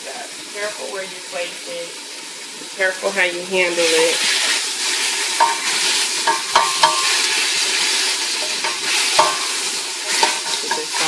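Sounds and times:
chicken sizzling in oil: 0.0 - 11.0
metal clinks against pot: 6.2 - 7.2, 8.4 - 9.6.

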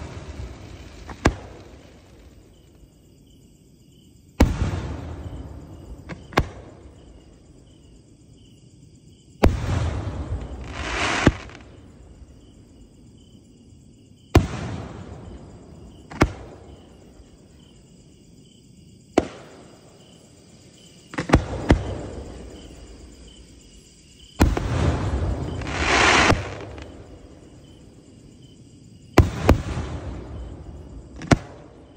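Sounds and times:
firework mortar bangs: 0.0 - 2.2, 4.4 - 6.8, 9.4 - 11.7, 14.3 - 15.3, 19.2 - 19.7, 24.4 - 27.3, 29.2 - 31.8
hiss and rumble: 0.0 - 31.9.

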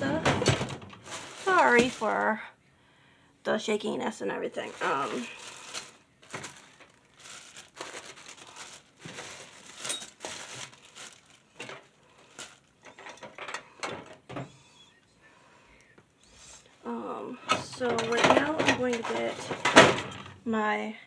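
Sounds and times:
rustling: 0.0 - 2.4, 4.5 - 14.1
containers clicking and rattling: 4.6 - 14.2, 17.5 - 20.3.

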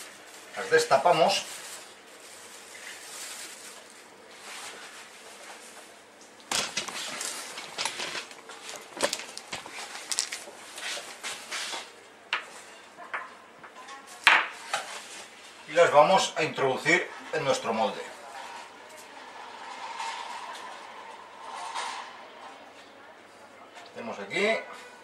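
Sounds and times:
container clicks and rustles: 6.5 - 10.5.

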